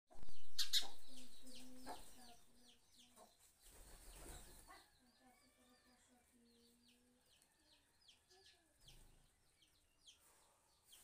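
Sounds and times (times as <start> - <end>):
high bird chirps: 0.1 - 5.9.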